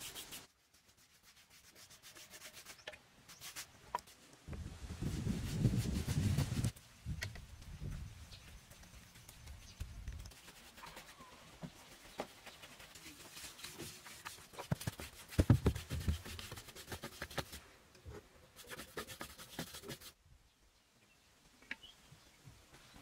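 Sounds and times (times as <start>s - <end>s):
brush scraping on wall: 5.0s - 6.8s.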